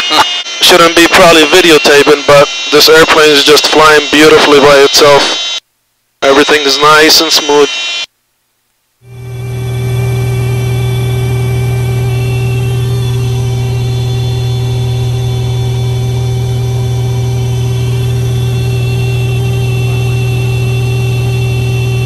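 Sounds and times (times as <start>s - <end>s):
aircraft engine and propeller droning: 9.1s - 22.0s.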